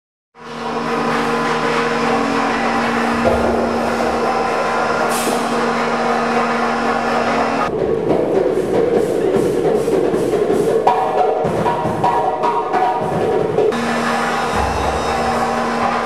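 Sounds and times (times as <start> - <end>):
dense droning with low tones: 0.4 - 7.8, 13.7 - 16.0.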